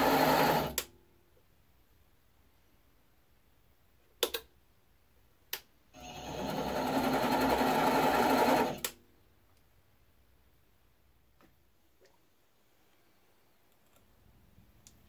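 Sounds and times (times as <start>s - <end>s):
lathe motor running: 6.0s - 8.8s.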